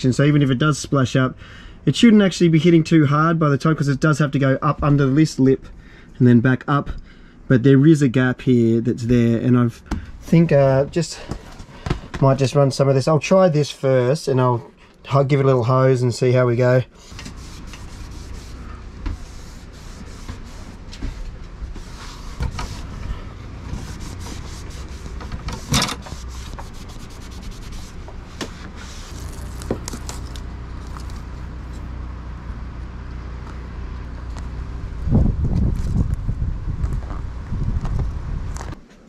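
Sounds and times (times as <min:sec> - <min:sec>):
low rumble: 0:27.7 - 0:38.8.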